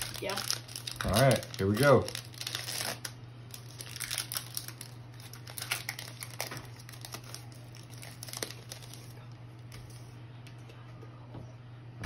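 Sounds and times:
cards clicking and rustling: 0:00.0 - 0:09.1
foil wrapper crinkling: 0:00.0 - 0:10.0.

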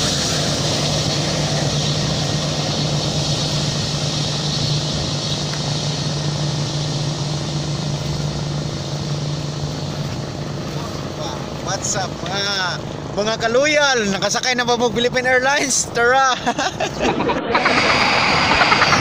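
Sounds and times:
jet engines running: 0:00.0 - 0:19.0.

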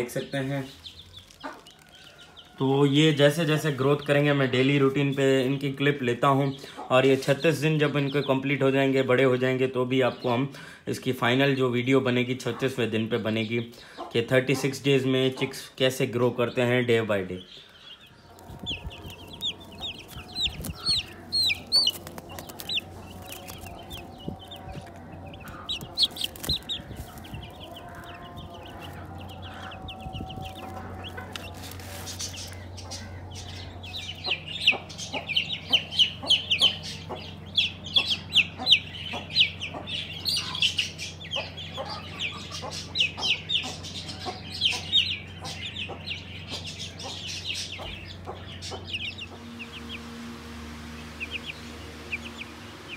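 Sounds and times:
chicks peeping: 0:00.0 - 0:52.9
low steady hum: 0:17.5 - 0:52.9.

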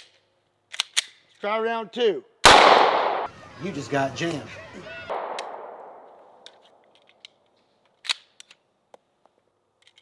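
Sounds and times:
pistol metallic clicks: 0:00.0 - 0:01.3, 0:05.2 - 0:05.7, 0:06.4 - 0:08.7
gunshot: 0:02.4 - 0:03.3, 0:05.1 - 0:06.0.

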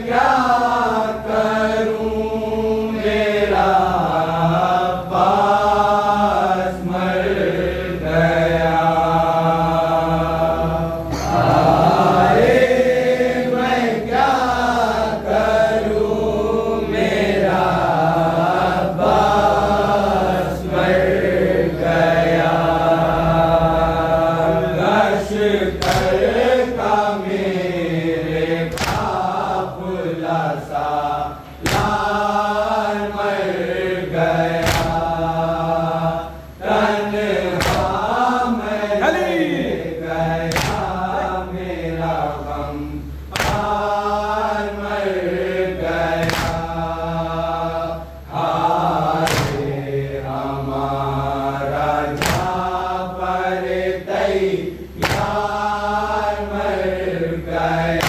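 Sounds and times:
group chanting a mourning lament: 0:00.0 - 0:58.0.

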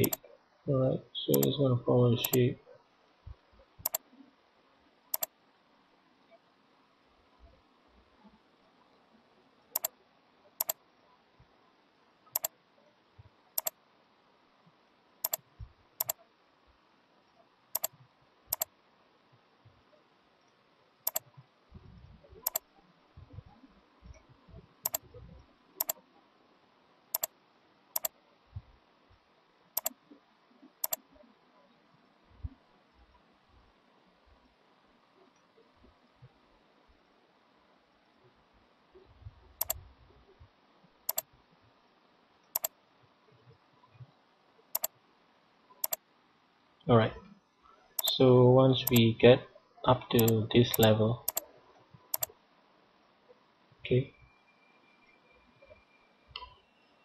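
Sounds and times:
mouse button clicking: 0:00.0 - 0:00.2, 0:01.3 - 0:01.5, 0:03.8 - 0:04.0, 0:05.1 - 0:05.3, 0:13.6 - 0:13.8, 0:16.0 - 0:16.2, 0:17.8 - 0:18.7, 0:21.1 - 0:21.3, 0:22.4 - 0:22.6, 0:24.8 - 0:25.1, 0:39.6 - 0:39.8, 0:48.8 - 0:49.0, 0:50.2 - 0:51.4, 0:52.1 - 0:52.3.

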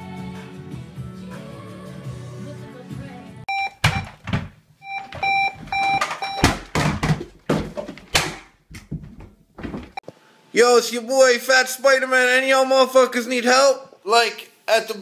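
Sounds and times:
background music: 0:00.0 - 0:03.5
electronic beeping: 0:03.5 - 0:04.1, 0:04.8 - 0:06.6.

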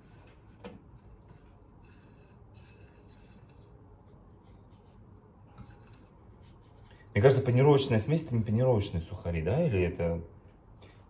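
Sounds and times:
rubbing and scraping on glass plate: 0:00.0 - 0:07.0.

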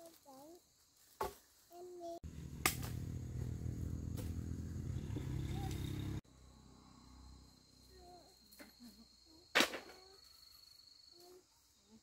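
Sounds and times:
sharp crack: 0:02.5 - 0:03.2.

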